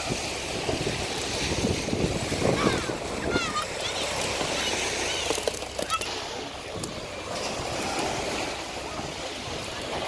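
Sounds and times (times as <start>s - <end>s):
ocean surf washing: 0.0s - 10.0s.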